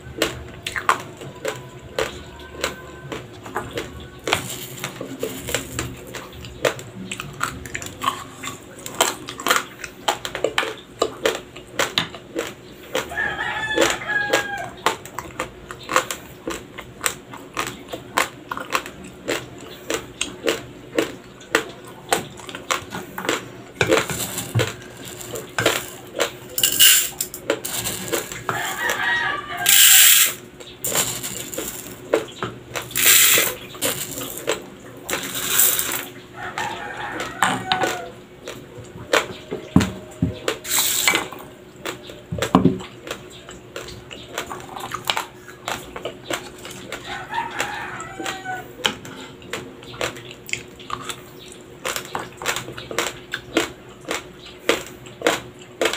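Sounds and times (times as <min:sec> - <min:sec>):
spoon scooping dry rice: 0:23.9 - 0:26.0, 0:26.6 - 0:32.0, 0:33.0 - 0:34.5
raw rice crunched between teeth: 0:23.9 - 0:28.8, 0:29.6 - 0:32.0.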